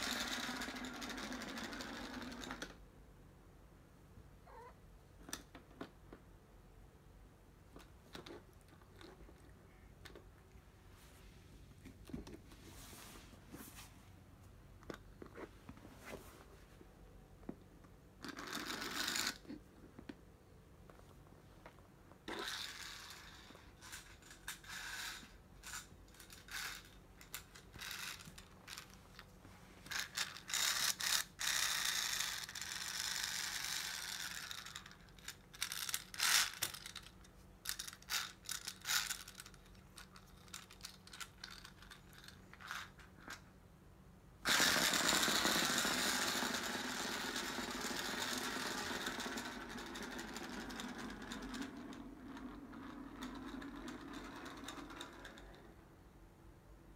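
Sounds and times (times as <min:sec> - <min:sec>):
toy motor whirring buzz: 0:00.0 - 0:02.7, 0:18.2 - 0:19.5, 0:22.3 - 0:29.0, 0:29.9 - 0:43.0, 0:44.5 - 0:52.5.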